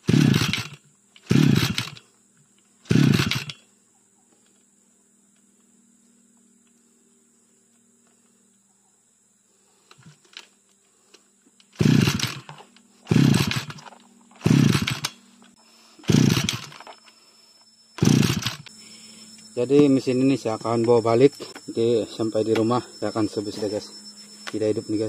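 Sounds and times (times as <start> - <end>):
engine cranking without starting: 0.0 - 2.0, 2.8 - 3.6, 11.7 - 15.2, 16.0 - 17.0, 18.0 - 18.7.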